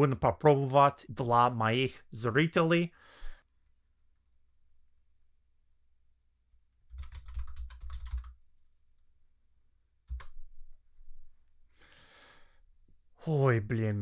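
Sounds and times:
typing on computer keyboard: 6.9 - 8.4, 10.1 - 10.4.

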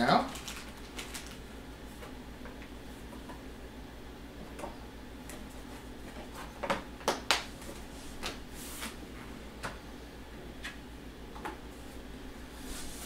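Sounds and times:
plastic crinkling: 0.2 - 1.5.

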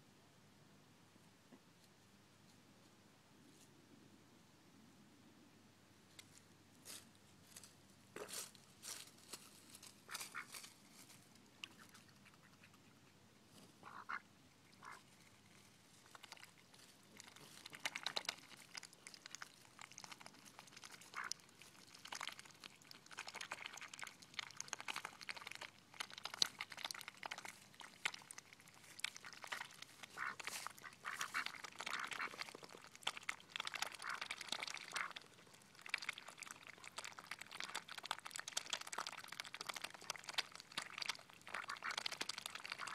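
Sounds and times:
rustling: 6.1 - 14.0, 24.8 - 33.2
ducks dabbling in wet mud: 9.8 - 10.6, 11.4 - 42.9
short duck calls: 10.1 - 10.5, 13.8 - 14.2, 30.2 - 32.3.

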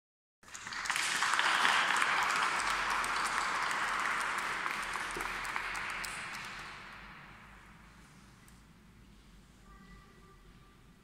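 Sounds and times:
audience applauding: 0.4 - 7.2.

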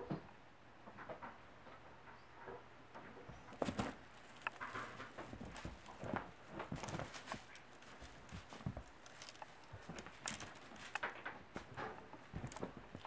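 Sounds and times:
kittens thumping on a couch: 3.2 - 13.0.

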